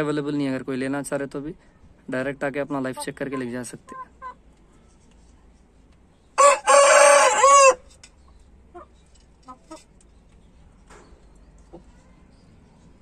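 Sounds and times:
faint chicken clucks: 3.0 - 4.9, 6.4 - 12.9
rooster crowing: 6.4 - 7.9.

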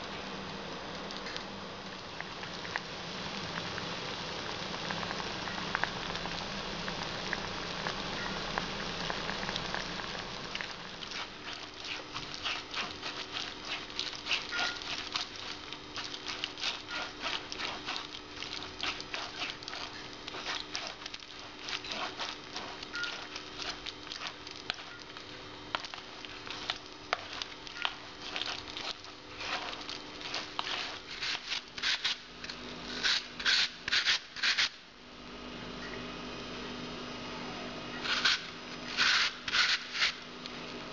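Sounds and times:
plums bubbling at a simmer: 0.0 - 33.0
wooden spoon scraping a sieve: 11.0 - 24.9, 28.2 - 32.2, 38.0 - 40.2.

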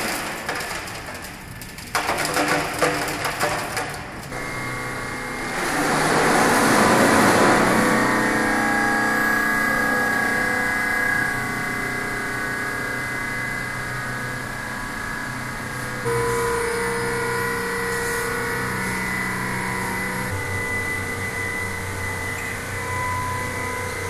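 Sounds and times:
layered drone of held tones: 4.3 - 24.0.

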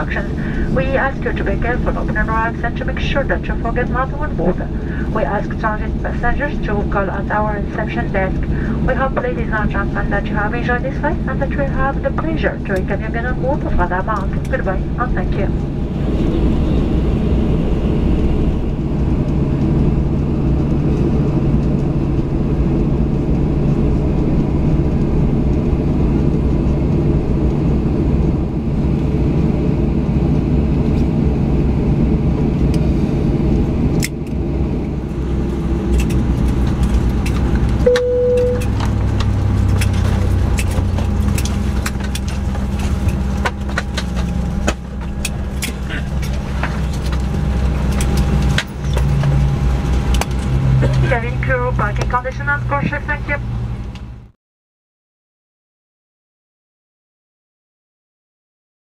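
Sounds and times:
jet engines rumbling: 0.0 - 54.4
short chime tone: 37.9 - 38.7.

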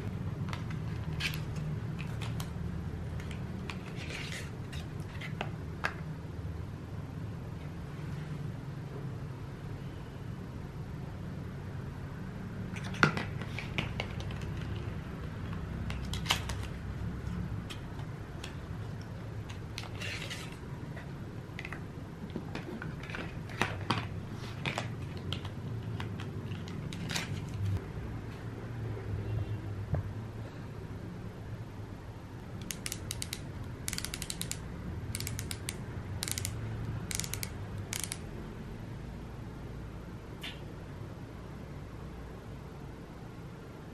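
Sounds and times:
makeup boxes rustling and tapping: 12.8 - 16.6, 21.6 - 27.4
sharp clicks: 32.6 - 38.3.

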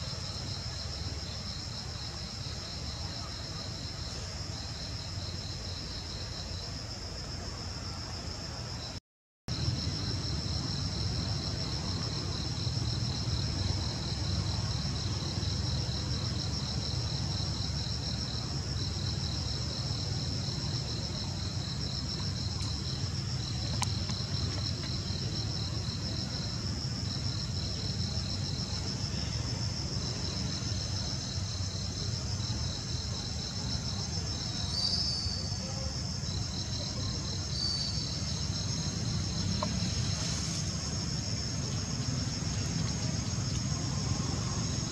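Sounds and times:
rapidly pulsing insect trill: 0.0 - 44.9
insects high-pitched drone: 9.5 - 44.9.

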